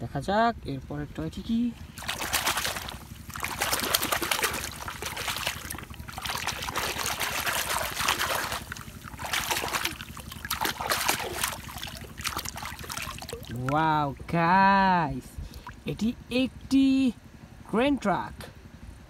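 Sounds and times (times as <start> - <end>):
water splashing and sloshing: 1.4 - 14.3, 15.4 - 15.9.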